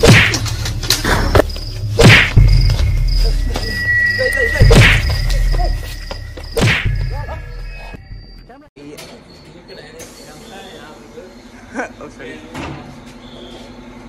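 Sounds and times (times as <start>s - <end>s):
loud thumps with whoosh: 0.0s - 0.4s, 2.0s - 3.2s, 4.6s - 5.8s, 6.5s - 7.3s
thin high tone: 2.5s - 8.7s.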